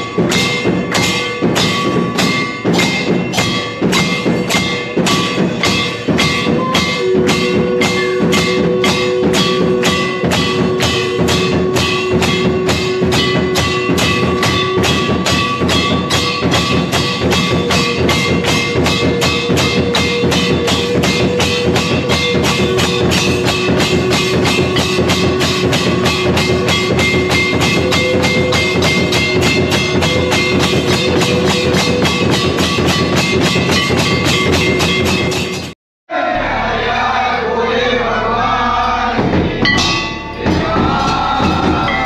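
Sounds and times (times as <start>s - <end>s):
tambourine-like percussion: 0.0s - 35.8s, 37.8s - 42.0s
steady held tones: 36.1s - 42.0s.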